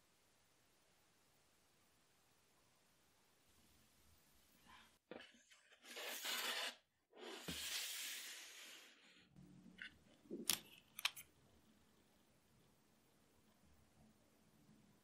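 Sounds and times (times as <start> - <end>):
baking sheet scraping rustle: 5.7 - 9.0.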